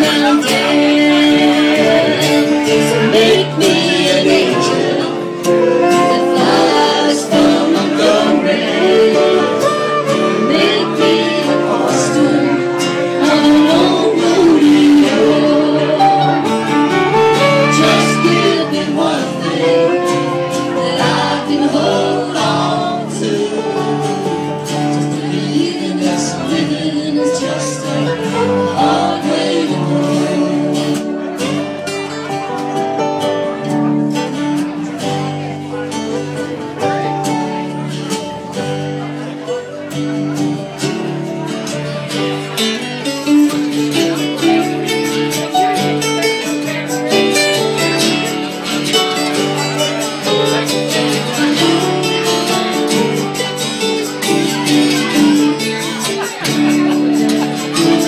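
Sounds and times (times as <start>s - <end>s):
fiddle melody: 0.0s - 40.4s
guitar accompaniment: 0.0s - 58.0s.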